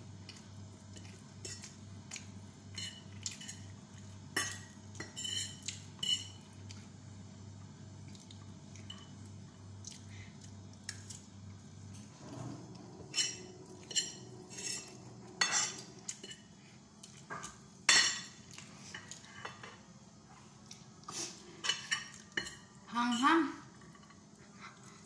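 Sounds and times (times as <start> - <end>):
cutlery clinking on ceramic plate: 4.4 - 6.4, 13.1 - 16.5.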